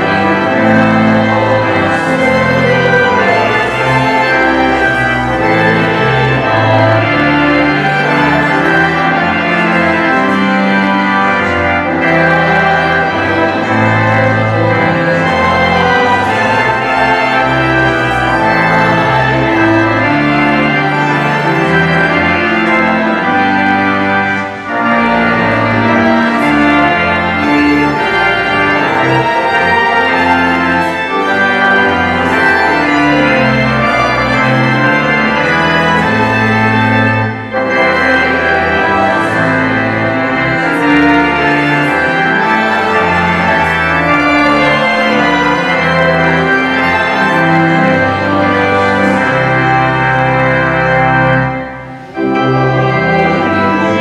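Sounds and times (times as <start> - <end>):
church organ playing: 0.0 - 54.0.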